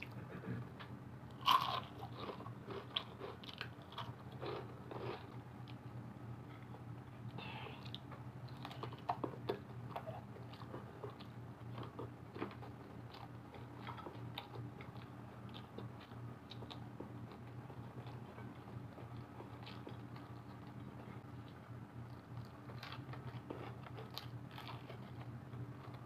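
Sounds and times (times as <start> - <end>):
chewing crunchy food: 0.0 - 5.9, 6.5 - 26.0
steady low hum: 0.0 - 26.0.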